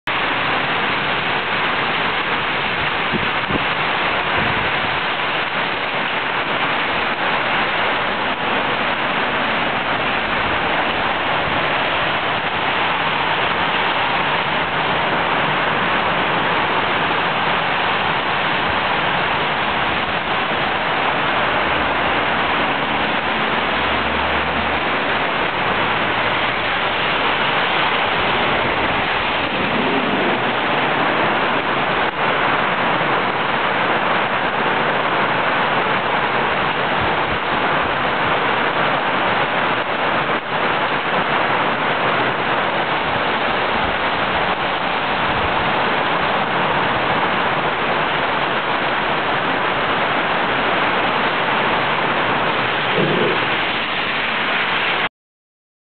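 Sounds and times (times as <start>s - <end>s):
heavy rain pouring: 0.0s - 55.1s
low rumble: 28.1s - 32.1s.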